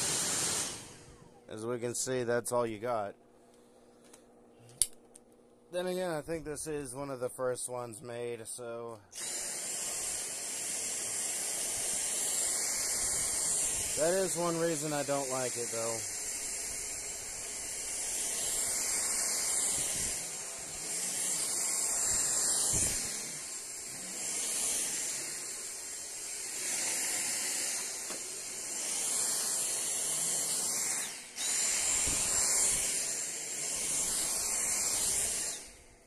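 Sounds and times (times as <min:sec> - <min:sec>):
vacuum cleaner motor whining: 0:00.0 - 0:01.6, 0:09.1 - 0:36.0.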